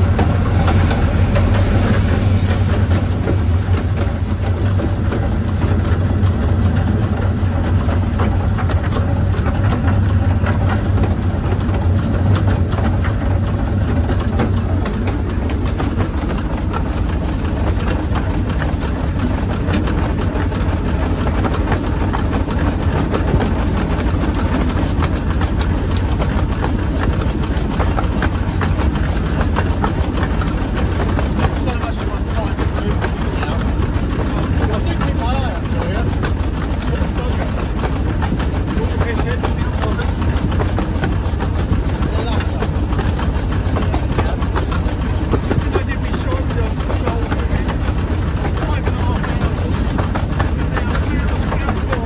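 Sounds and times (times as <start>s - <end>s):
steam hiss: 0.0s - 4.6s
steam locomotive rumbling on rails: 0.0s - 52.0s.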